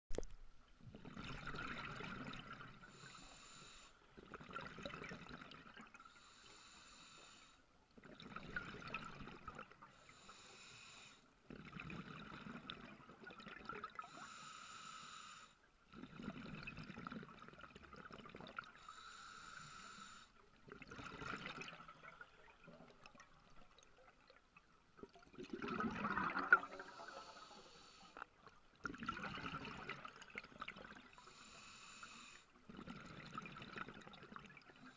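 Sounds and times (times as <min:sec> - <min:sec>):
exhaled air bubbling: 0:00.1 - 0:03.1, 0:04.2 - 0:06.3, 0:08.0 - 0:10.0, 0:11.4 - 0:14.2, 0:15.9 - 0:18.9, 0:20.6 - 0:27.4, 0:28.2 - 0:31.5, 0:32.6 - 0:34.9.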